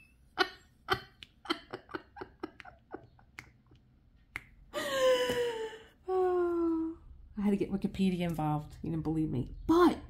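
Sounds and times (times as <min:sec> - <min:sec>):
woman laughing: 0:00.4 - 0:03.4.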